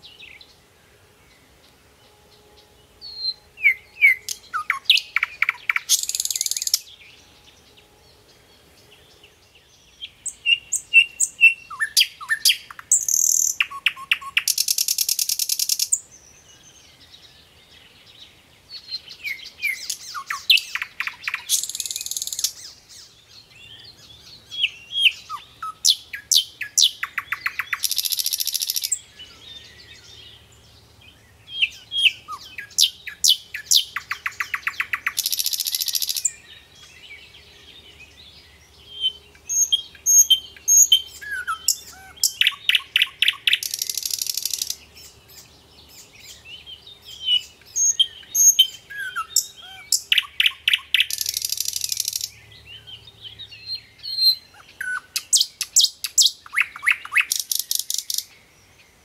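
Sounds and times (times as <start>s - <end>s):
bird chirps: 1.2s - 59.0s
songbird trilling: 3.0s - 7.7s, 9.0s - 17.2s, 18.7s - 58.4s.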